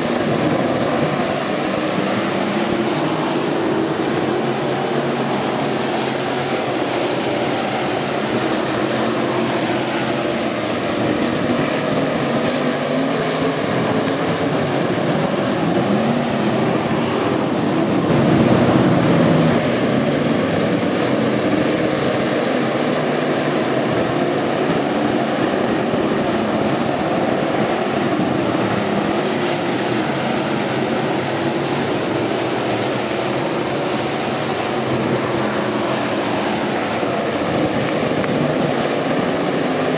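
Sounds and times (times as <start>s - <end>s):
stock car engines racing: 0.0s - 39.9s.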